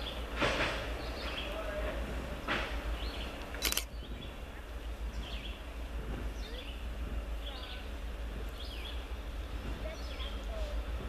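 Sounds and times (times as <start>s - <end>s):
sharp click: 3.4s - 3.9s.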